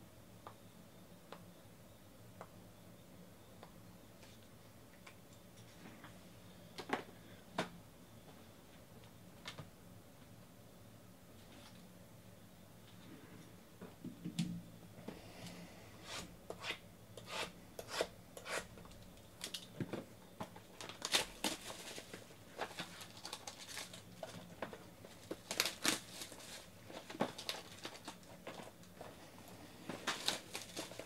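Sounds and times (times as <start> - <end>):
plastic shrink wrap tearing: 20.8 - 24.5, 25.2 - 28.3, 30.0 - 31.0.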